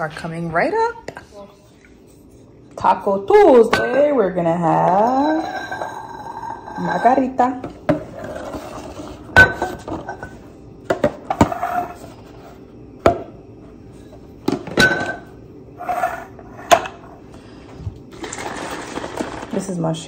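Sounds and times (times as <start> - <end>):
glass jars knocking and clinking: 9.3 - 11.5, 14.5 - 15.4.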